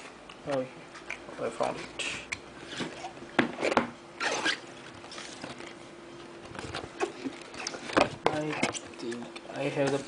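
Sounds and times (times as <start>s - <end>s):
faint steady hum: 0.0s - 10.0s
plastic wrap rustling: 2.6s - 9.2s.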